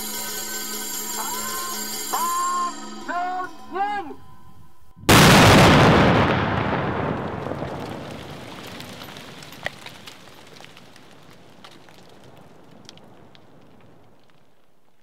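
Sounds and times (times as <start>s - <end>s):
person counting down: 1.4s - 4.6s
large explosion with rumble: 5.1s - 14.2s.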